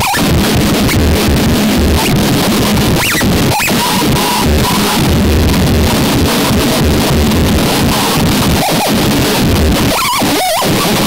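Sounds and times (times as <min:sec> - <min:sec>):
choppy low rumble: 0:00.0 - 0:10.0
distorted static noise: 0:00.0 - 0:11.0
wavering whine: 0:00.0 - 0:11.0.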